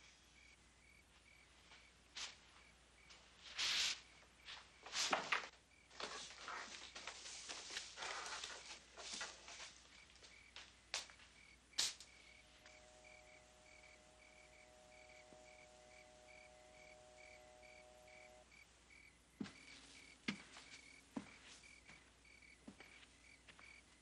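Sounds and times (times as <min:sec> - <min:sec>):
steady hum: 0:06.8 - 0:22.4.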